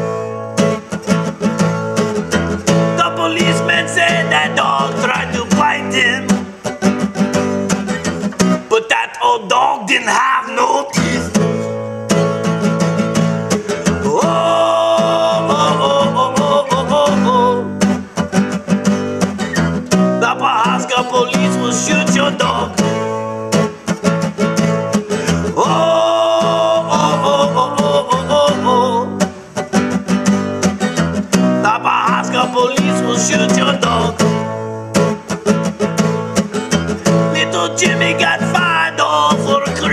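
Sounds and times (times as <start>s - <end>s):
acoustic guitar strumming: 0.0s - 39.9s
person singing: 2.9s - 6.6s, 8.7s - 11.5s, 13.6s - 18.1s, 20.2s - 23.9s, 25.1s - 29.4s, 31.6s - 34.4s, 37.1s - 39.9s.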